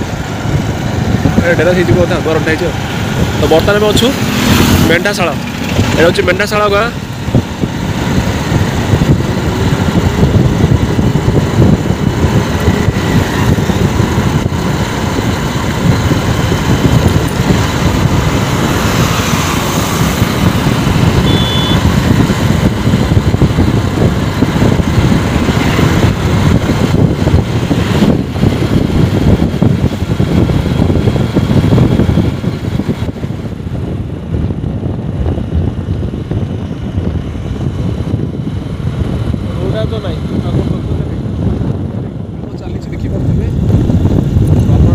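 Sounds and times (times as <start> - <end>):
motorcycle engine running: 0.0 - 44.9
wind buffeting microphone: 0.0 - 44.9
high beep: 21.2 - 21.8.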